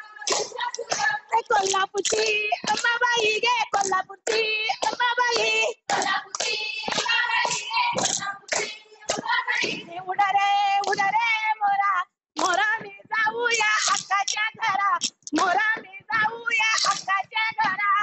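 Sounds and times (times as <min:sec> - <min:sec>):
women singing folk song: 0:00.0 - 0:18.0
sharp hand claps: 0:00.3 - 0:09.8, 0:12.4 - 0:12.8, 0:13.5 - 0:15.5, 0:16.6 - 0:18.0.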